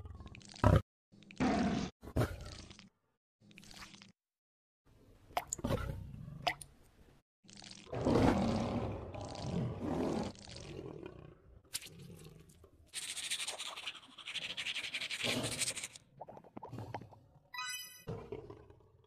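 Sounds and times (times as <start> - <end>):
low animal growl: 7.9 - 12.3
tongue scraper scraping: 13.0 - 16.0.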